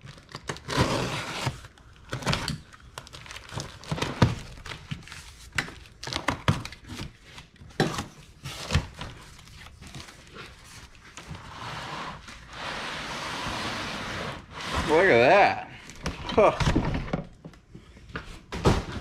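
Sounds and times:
cardboard and tape tearing: 0.0 - 5.4
box knocks and thunks: 18.5 - 19.0.

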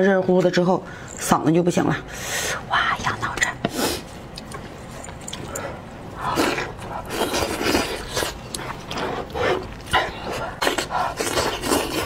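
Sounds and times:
person chewing and sucking meat: 4.3 - 12.0.

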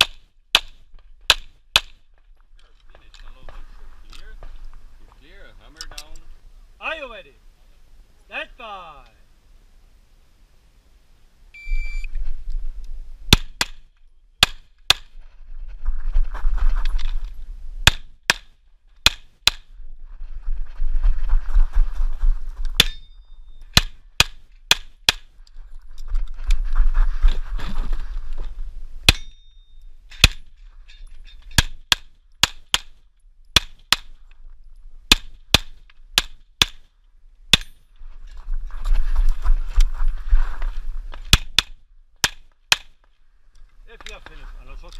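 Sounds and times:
footsteps on gravel: 2.1 - 5.2
metallic ring: 22.8 - 23.6, 29.1 - 29.9.

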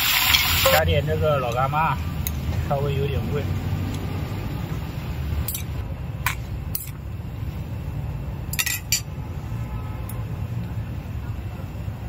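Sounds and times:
metal utensils clinking: 8.5 - 9.1.

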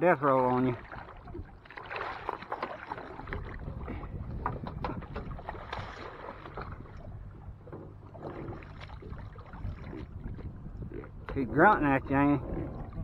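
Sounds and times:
boat motor humming: 0.0 - 13.0
fish thrashing and splashing: 0.8 - 7.0, 8.1 - 10.4
knocks against boat: 4.3 - 5.9, 7.6 - 8.8.

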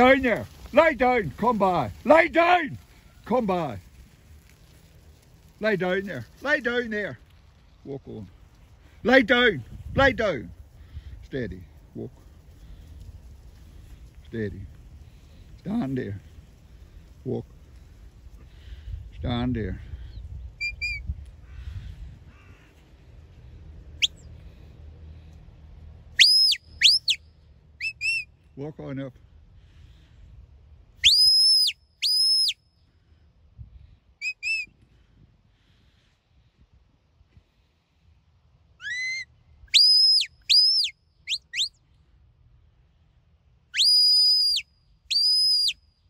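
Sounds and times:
rising whistle commands: 20.6 - 21.0, 26.2 - 28.3, 31.0 - 32.6, 34.2 - 34.7, 38.8 - 41.8, 43.8 - 45.8.

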